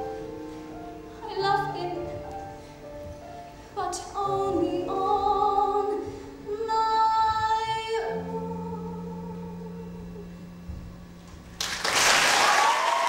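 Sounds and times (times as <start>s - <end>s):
musical accompaniment: 0.0s - 12.0s
woman singing a ballad: 1.2s - 2.4s, 3.7s - 10.3s.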